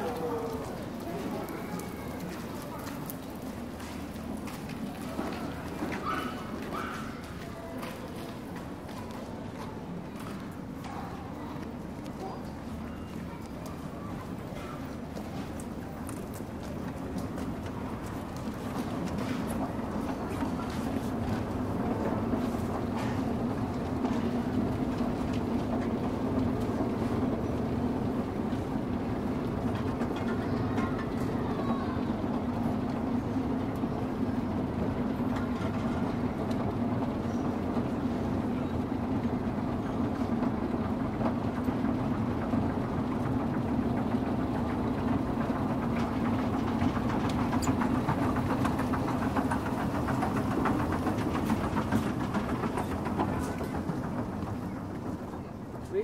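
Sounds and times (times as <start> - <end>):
steady mechanical drone: 13.8 - 56.0.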